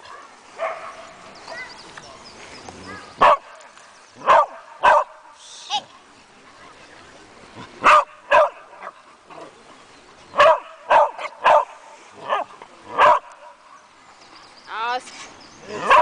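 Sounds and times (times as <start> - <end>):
dog barking: 0.1 - 1.0, 3.2 - 3.6, 4.2 - 5.2, 7.8 - 9.0, 10.4 - 13.8, 15.8 - 16.0.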